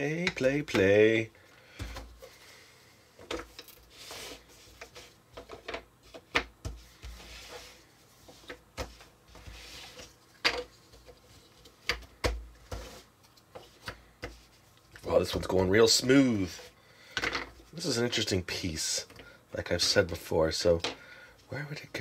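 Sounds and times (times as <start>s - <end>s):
pieces rubbing and sliding: 3.4s - 11.9s, 12.6s - 15.4s.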